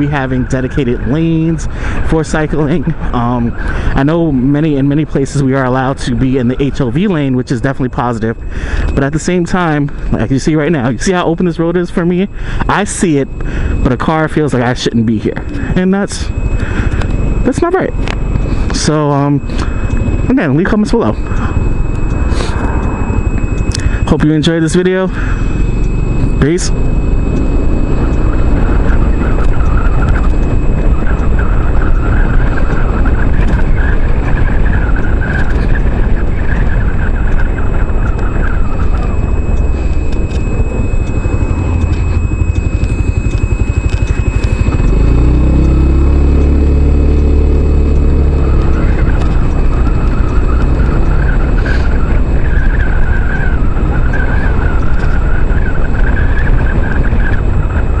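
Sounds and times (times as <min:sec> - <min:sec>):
road noise: 0:00.0 - 0:58.0
wind rushing over microphone: 0:00.0 - 0:58.0
scooter engine: 0:38.0 - 0:55.6.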